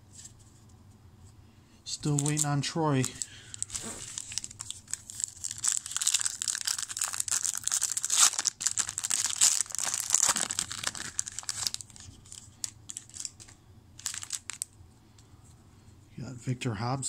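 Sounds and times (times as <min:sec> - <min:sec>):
wrapper tearing and crinkling: 0:02.0 - 0:14.7.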